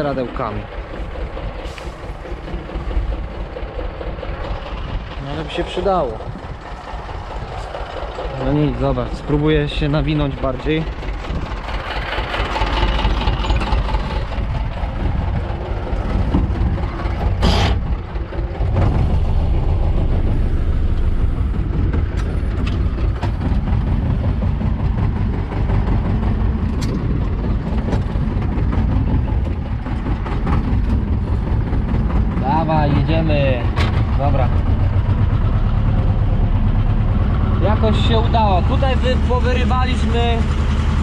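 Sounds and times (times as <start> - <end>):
tractor diesel engine running: 0.0 - 41.0.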